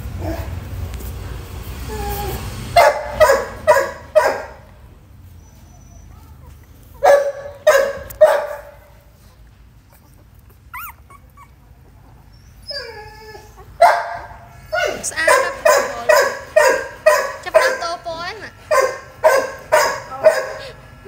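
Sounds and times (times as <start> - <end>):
dog whining faintly: 1.8 - 2.6, 5.3 - 8.1, 9.2 - 17.3
dog yelping: 1.8 - 4.6, 5.4 - 8.9, 9.8 - 21.0.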